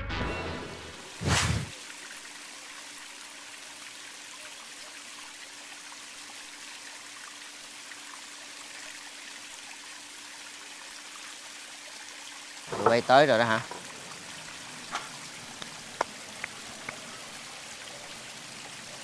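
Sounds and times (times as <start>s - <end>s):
steady hiss: 12.7s - 19.0s.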